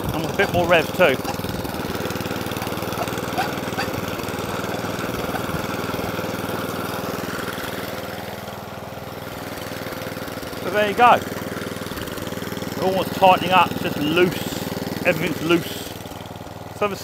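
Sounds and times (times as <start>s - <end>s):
lawn mower engine running: 0.0s - 17.0s.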